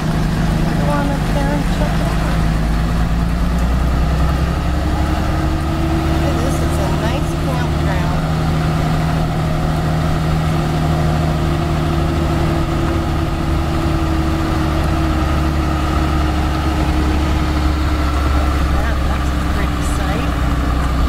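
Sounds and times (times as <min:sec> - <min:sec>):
diesel engine droning: 0:00.0 - 0:21.0.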